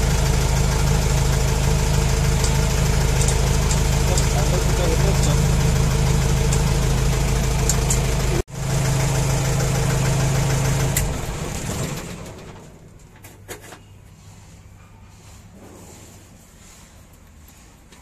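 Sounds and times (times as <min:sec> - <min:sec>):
diesel engine idling: 0:00.0 - 0:12.9.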